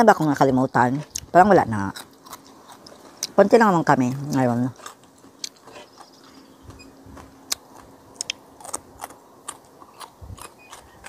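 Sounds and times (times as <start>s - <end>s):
chewing: 1.9s - 3.4s, 4.0s - 11.0s.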